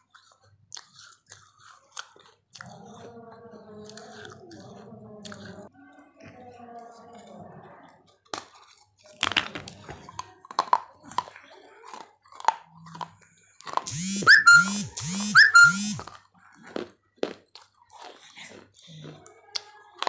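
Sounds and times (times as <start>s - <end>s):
teeth crunching baked clay: 0.0s - 5.7s, 7.9s - 20.0s
rising and falling pitched sound: 13.9s - 16.0s.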